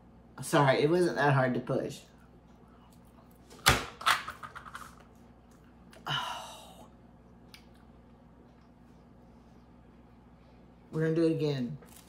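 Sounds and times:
breathy sigh: 6.0 - 7.0.

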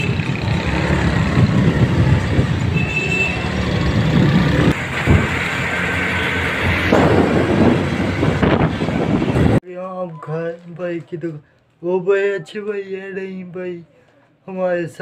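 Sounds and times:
engine and road rumble: 0.0 - 9.6
wind buffeting microphone: 0.1 - 3.0, 6.8 - 9.6.

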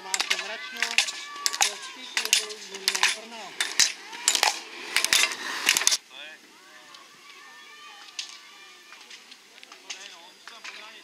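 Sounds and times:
gate poles being hit: 0.0 - 5.3
pole tips striking asphalt: 0.0 - 6.0.

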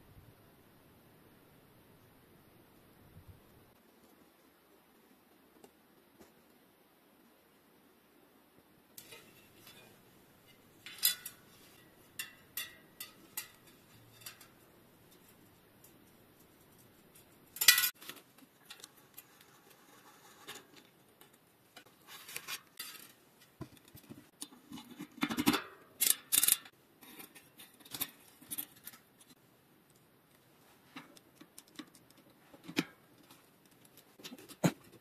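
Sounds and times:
metal hand tools clicking and scraping: 9.0 - 16.0, 17.2 - 23.6, 25.0 - 29.4.

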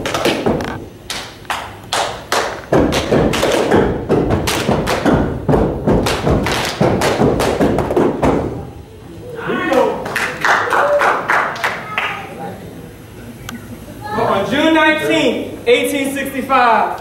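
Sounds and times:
feet stomping on floor: 2.6 - 8.6.

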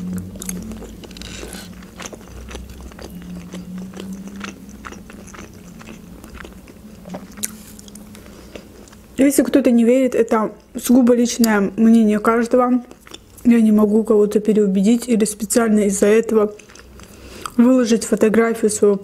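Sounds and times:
chewing with crunches: 0.0 - 9.2, 12.8 - 13.6, 15.5 - 18.3.

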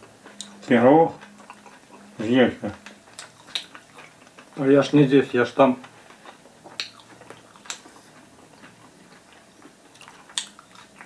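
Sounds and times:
person chewing food: 0.0 - 4.9, 5.8 - 11.0
wet mouth clicks: 3.1 - 4.4, 6.7 - 8.0, 9.9 - 11.0.

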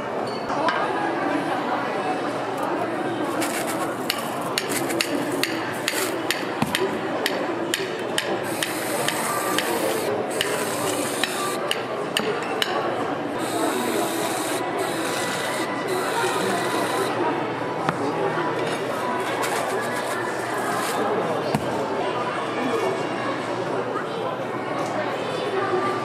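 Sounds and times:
stall background noise: 0.0 - 26.0
whipped cream dispenser hissing: 8.4 - 11.7, 13.4 - 17.2.

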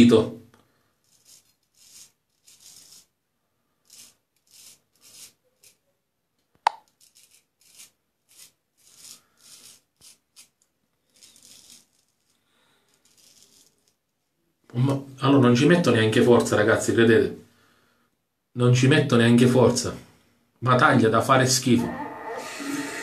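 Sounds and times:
razor scraping stubble: 1.0 - 3.1, 3.8 - 5.8, 6.9 - 14.0, 21.7 - 23.0.

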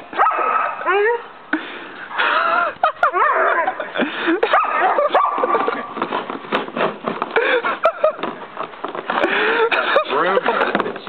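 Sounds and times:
puppy barking and yipping: 0.2 - 1.2, 3.0 - 3.8, 4.4 - 5.9
shovel blade scraping paving: 4.5 - 11.0.

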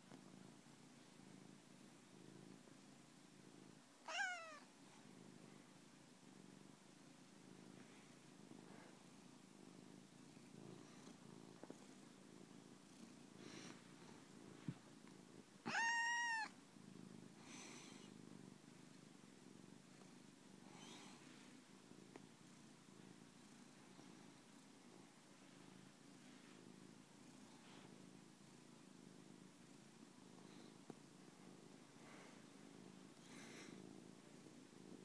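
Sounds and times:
cat purring: 0.0 - 35.0
cat meowing: 4.0 - 4.6, 15.6 - 16.5
faint short cat calls: 4.0 - 4.7, 15.6 - 16.5.

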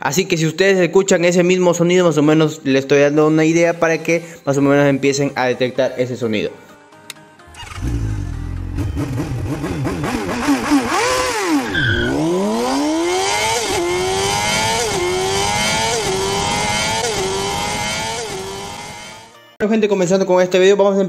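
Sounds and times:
engine revving and accelerating: 7.6 - 19.3.

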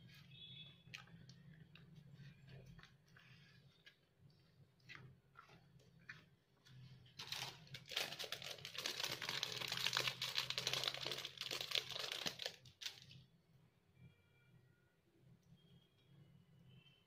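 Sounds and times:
plastic sheet crinkling: 7.0 - 13.2.

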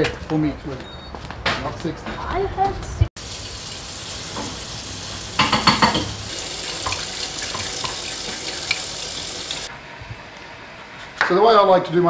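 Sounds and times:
tap water running into sink: 3.2 - 9.7.

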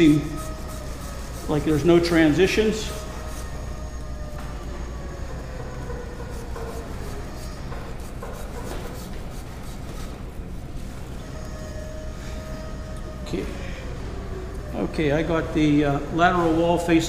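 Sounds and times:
metal rasp scraping plaster: 0.0 - 3.6
steady low hum: 0.0 - 17.0.

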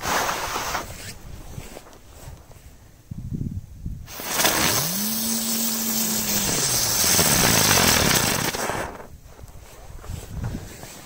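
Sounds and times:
low buzzing tone: 4.1 - 8.5
firework spraying hiss: 4.1 - 9.1.

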